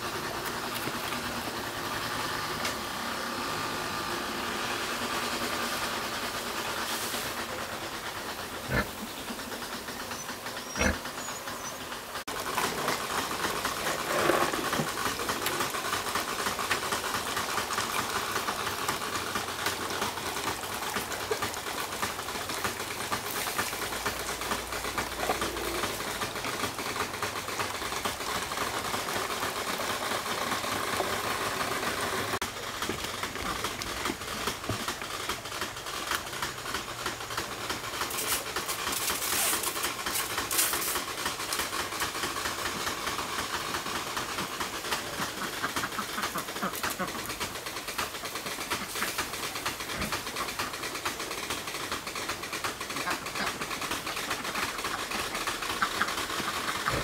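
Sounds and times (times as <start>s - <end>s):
sprayer pump rattling: 0.0s - 57.0s.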